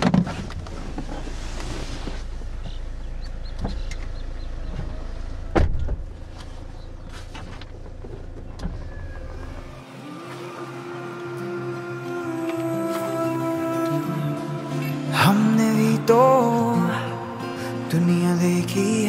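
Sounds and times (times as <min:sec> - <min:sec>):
car engine rumble: 0:00.0 - 0:16.1
sustained music tones: 0:08.3 - 0:19.0.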